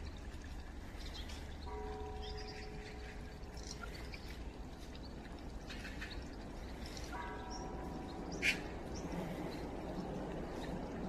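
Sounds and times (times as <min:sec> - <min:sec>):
water running into stone basin: 0:00.0 - 0:11.0
magpies calling: 0:05.7 - 0:09.6.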